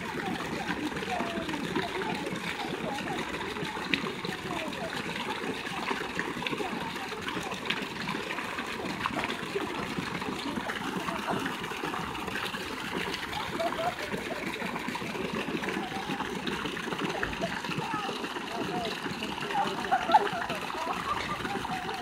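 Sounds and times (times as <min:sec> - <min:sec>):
fountain water splashing: 0:00.0 - 0:22.0.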